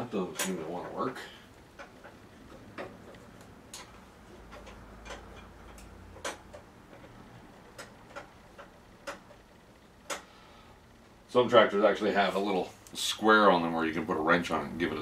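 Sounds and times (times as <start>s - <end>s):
tools clicking and tapping: 0.3s - 1.0s, 1.7s - 10.3s.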